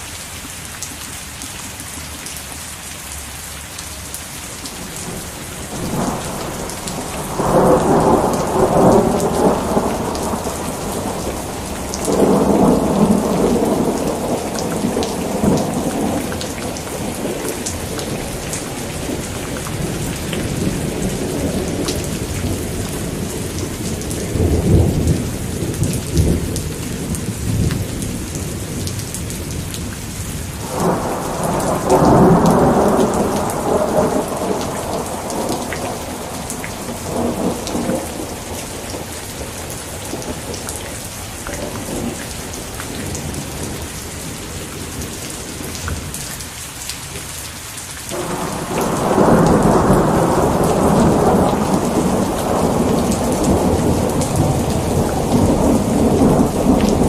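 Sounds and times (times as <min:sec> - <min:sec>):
steady rain falling: 0:00.0 - 0:57.0
rolls of thunder: 0:05.1 - 0:28.8, 0:30.6 - 0:40.6, 0:48.1 - 0:57.0.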